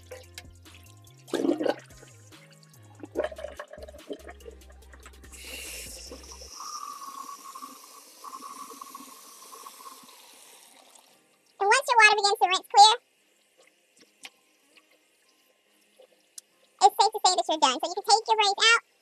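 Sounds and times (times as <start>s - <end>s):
water splashing in a sink: 0.0s - 11.0s.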